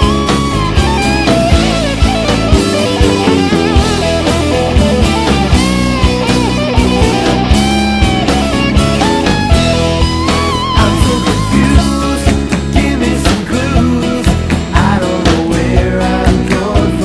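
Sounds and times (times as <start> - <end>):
lead electric guitar bending notes: 0.0 - 12.8
bass guitar: 0.0 - 17.0
drums keeping a steady beat: 0.0 - 17.0
rhythm guitars: 0.0 - 17.0.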